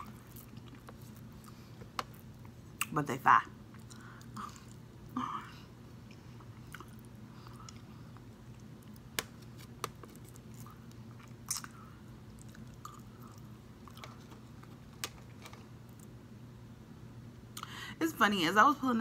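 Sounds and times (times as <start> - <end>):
person chewing: 0.0 - 2.9, 3.7 - 5.2, 6.0 - 16.1.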